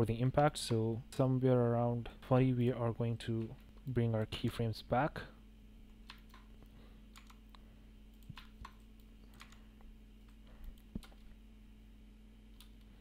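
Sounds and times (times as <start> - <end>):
low steady hum: 0.0 - 13.0
keyboard and mouse clicks: 6.0 - 6.5, 7.2 - 9.6.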